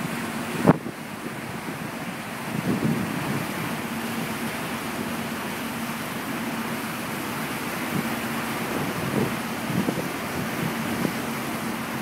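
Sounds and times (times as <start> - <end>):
wind on microphone: 0.0 - 4.3, 7.8 - 12.0
churning wake rushing: 0.0 - 12.0
ferry engine hum: 0.0 - 12.0.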